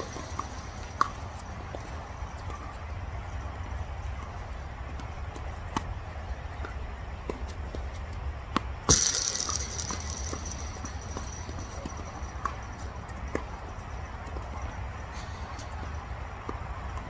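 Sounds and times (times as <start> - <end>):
tennis balls being struck: 0.0 - 2.8, 3.6 - 14.8
steady low rumble: 7.5 - 16.8.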